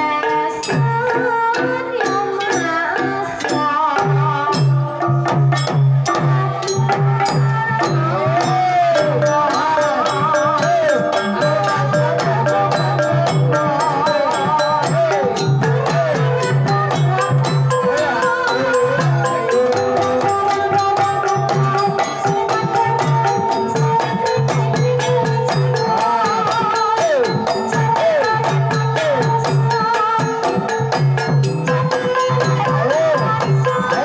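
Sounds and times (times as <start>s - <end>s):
hand drum: 0.0s - 34.0s.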